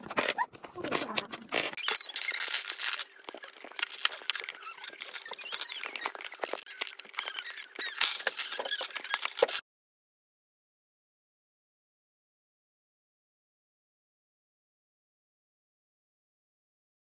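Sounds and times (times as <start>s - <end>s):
plastic parts clicking: 0.0s - 9.6s.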